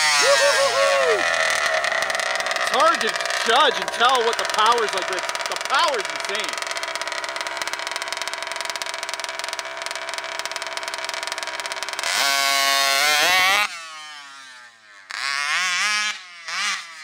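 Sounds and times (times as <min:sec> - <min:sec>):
two-stroke engine idling and revving: 0:00.0 - 0:17.0.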